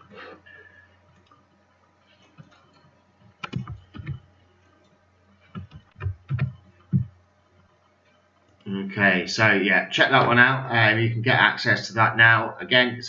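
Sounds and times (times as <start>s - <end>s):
faint electrical hum: 0.0s - 13.0s
sharp clicks and knocks: 2.3s - 4.2s, 5.5s - 7.2s.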